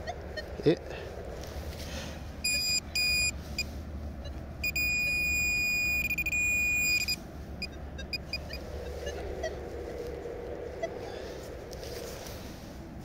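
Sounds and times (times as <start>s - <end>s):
high-pitched buzzer tone: 4.6s - 7.2s.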